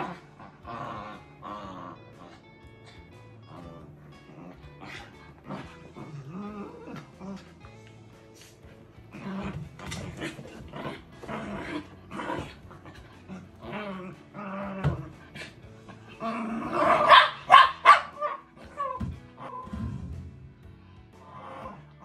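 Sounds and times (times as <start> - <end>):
dogs growling: 0.0 - 22.0
dogs barking: 16.7 - 19.6.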